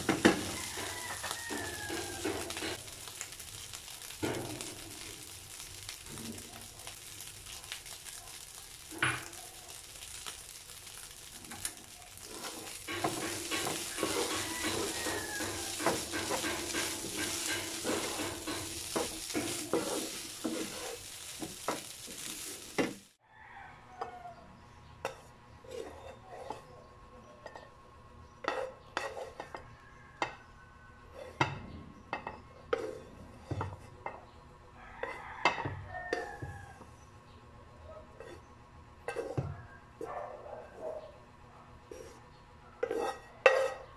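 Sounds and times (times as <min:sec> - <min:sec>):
spatula knocking on pan: 0:00.0 - 0:02.7, 0:12.5 - 0:23.0
wooden spatula scraping pan: 0:00.0 - 0:02.8, 0:11.7 - 0:23.0, 0:28.4 - 0:29.6, 0:39.1 - 0:39.5, 0:42.8 - 0:43.8
rice sizzling in a frying pan: 0:00.0 - 0:23.2, 0:31.1 - 0:34.2, 0:34.8 - 0:37.2, 0:38.2 - 0:39.6, 0:42.8 - 0:43.8.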